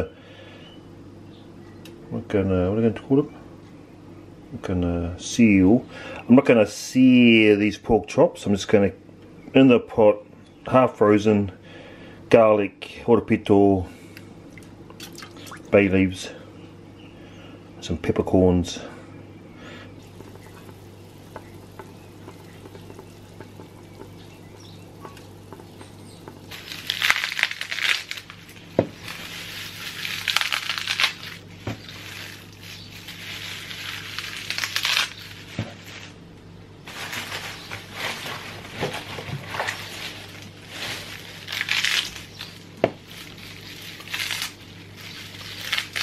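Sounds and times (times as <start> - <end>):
low steady hum: 0.0 - 46.0
leafy rustling: 20.0 - 36.2, 36.8 - 46.0
stems snapping: 20.1 - 36.1, 39.6 - 46.0.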